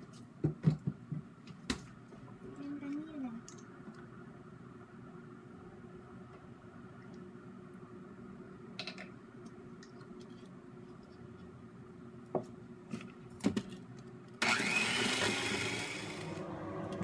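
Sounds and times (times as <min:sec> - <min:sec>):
electric hand mixer whining: 0:14.4 - 0:17.0.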